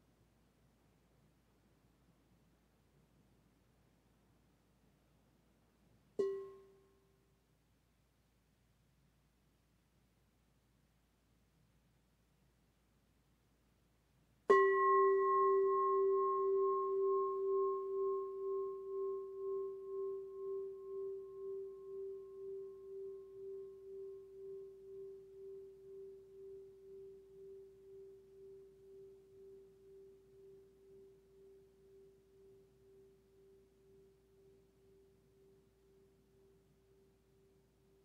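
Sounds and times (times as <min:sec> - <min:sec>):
singing bowl struck and ringing: 0:06.2 - 0:06.8, 0:14.5 - 0:35.5.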